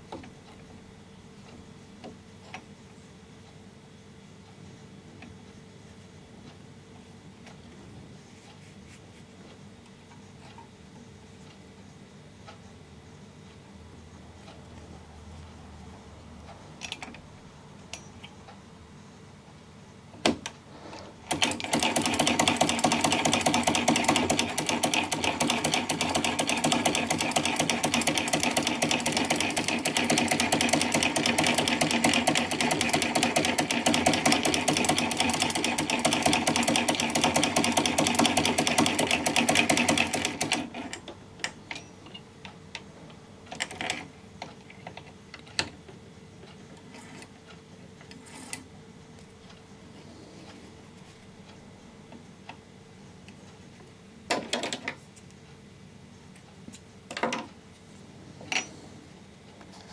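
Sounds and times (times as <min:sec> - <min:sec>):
sewing machine clatter: 0:21.2 - 0:41.1, 0:43.5 - 0:44.1.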